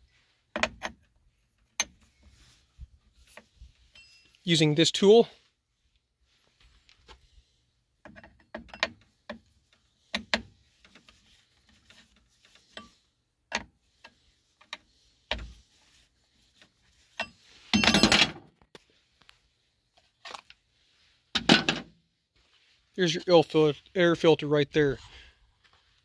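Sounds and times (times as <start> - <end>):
screwdriver clicks and scrapes: 0.5 - 2.6, 8.0 - 15.6, 16.6 - 18.2.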